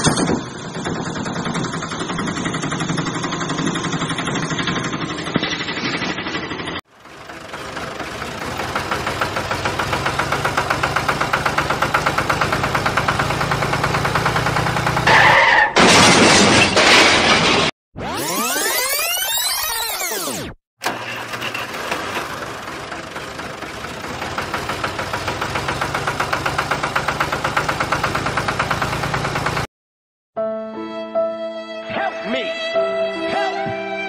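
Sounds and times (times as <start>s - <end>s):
engine chugging: 0.0s - 15.3s, 20.8s - 29.7s
vehicle engine: 0.0s - 18.6s, 20.2s - 29.7s
loud harsh crash: 15.7s - 17.7s.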